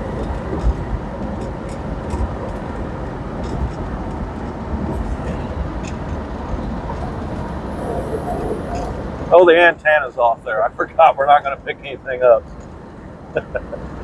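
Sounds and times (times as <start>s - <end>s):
tyre and wind noise: 0.0s - 9.6s
car engine rumble: 0.0s - 14.0s.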